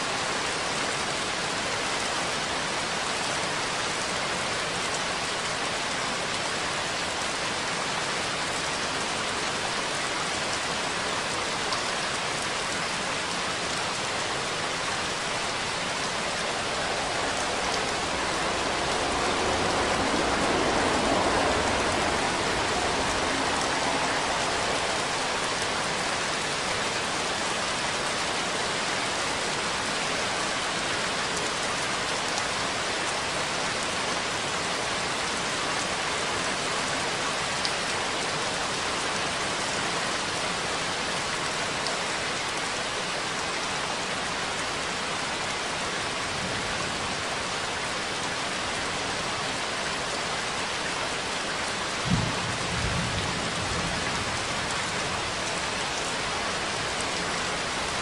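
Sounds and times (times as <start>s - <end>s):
steady rain: 0.0s - 58.0s
low rumble of thunder: 15.0s - 26.3s, 52.0s - 56.6s.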